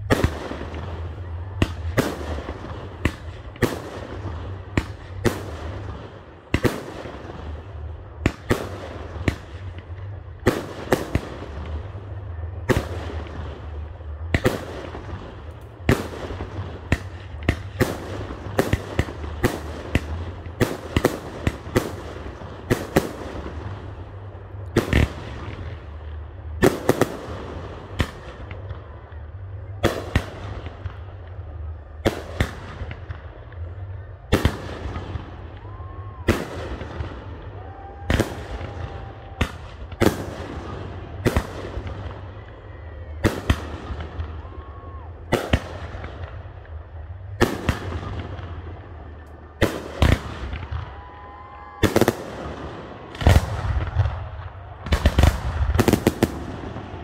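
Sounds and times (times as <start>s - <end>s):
fireworks bangs: 0.0s - 57.0s.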